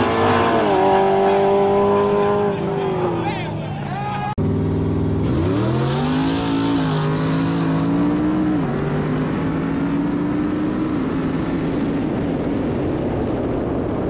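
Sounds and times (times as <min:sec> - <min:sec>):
race car engine accelerating: 0:00.0 - 0:03.4, 0:04.4 - 0:12.1.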